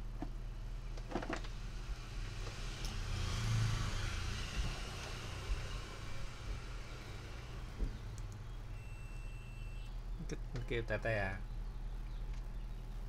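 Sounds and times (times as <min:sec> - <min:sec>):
electrical hum: 0:00.0 - 0:13.0
motor vehicle passing: 0:01.5 - 0:08.7.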